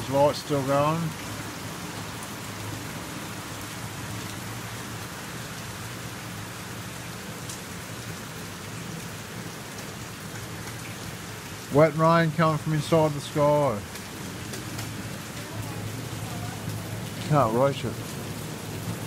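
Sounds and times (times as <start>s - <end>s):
rain hissing on surfaces: 0.0s - 19.0s.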